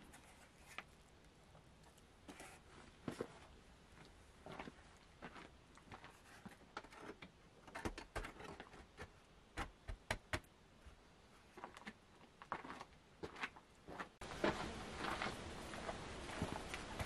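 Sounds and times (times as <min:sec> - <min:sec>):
soft footsteps: 0:02.2 - 0:07.0, 0:10.8 - 0:17.0.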